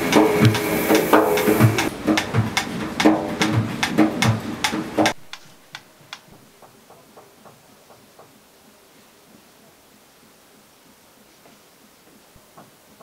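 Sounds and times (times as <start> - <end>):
rhythmic ringing strikes: 0.0 - 5.2
metronome ticking: 0.0 - 6.3.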